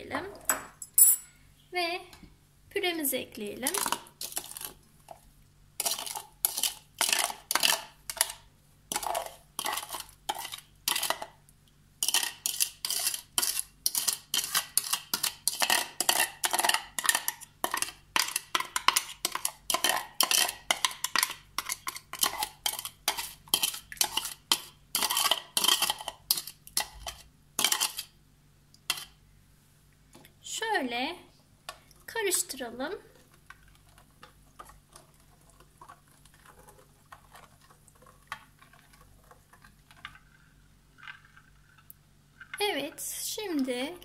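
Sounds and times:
spoon scraping plastic bowl: 3.7 - 4.8, 5.8 - 11.4, 12.0 - 28.2, 28.8 - 29.2, 33.1 - 43.1.

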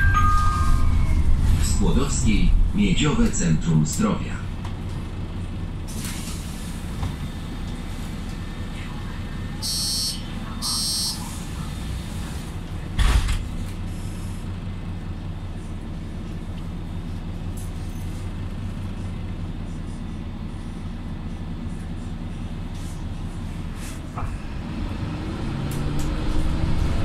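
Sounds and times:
bus engine droning: 0.0 - 27.0
high-pitched door warning beeper: 9.6 - 11.2.

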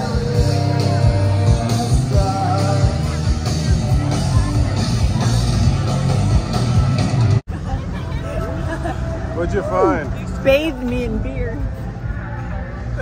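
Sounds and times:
person singing: 0.0 - 4.6
heavy drum beat: 0.0 - 7.4.

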